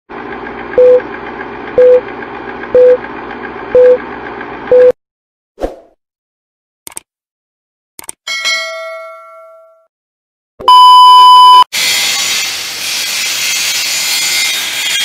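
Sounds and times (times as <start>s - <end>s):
short beeps: 1.8s - 2.0s, 2.8s - 3.0s, 3.8s - 4.0s, 4.7s - 5.0s, 10.6s - 11.7s.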